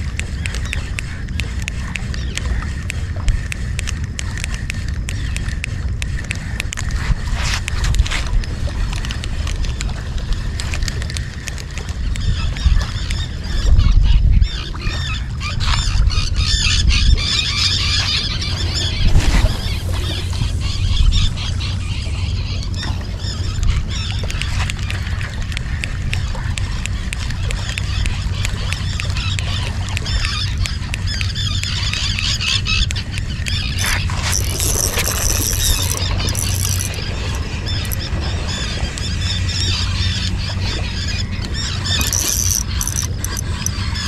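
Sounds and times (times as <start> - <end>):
wind on microphone: 0.0 - 44.0
fishing reel ticking: 25.5 - 38.1, 41.8 - 44.0.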